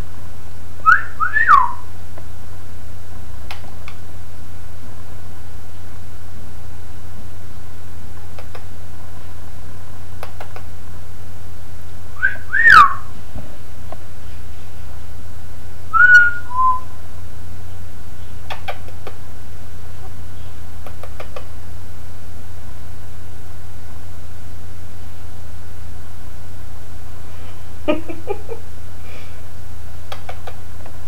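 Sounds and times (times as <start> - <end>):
steady low hum and hiss: 0.0 - 31.0
parakeet whistling: 0.8 - 1.8, 12.2 - 13.1, 15.9 - 16.9.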